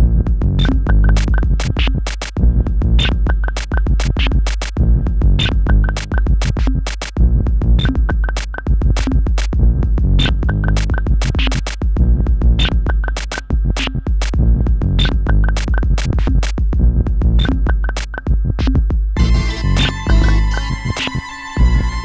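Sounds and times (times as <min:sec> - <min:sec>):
electronic beat music: 0:00.4 - 0:07.2, 0:07.8 - 0:09.6, 0:10.2 - 0:14.4, 0:15.0 - 0:16.8, 0:17.4 - 0:22.0
sustained drone chord: 0:19.2 - 0:22.0.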